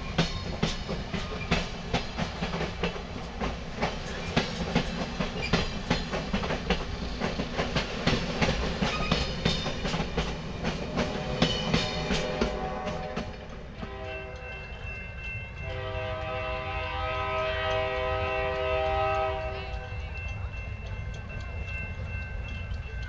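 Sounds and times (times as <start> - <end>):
train wheels clattering over joints: 0.0 - 16.6
locomotive chime horn: 10.9 - 20.8.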